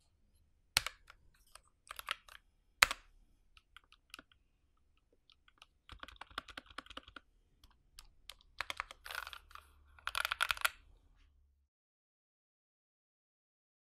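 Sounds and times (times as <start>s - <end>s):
mechanical keyboard typing: 3.6s - 4.4s, 5.2s - 10.8s.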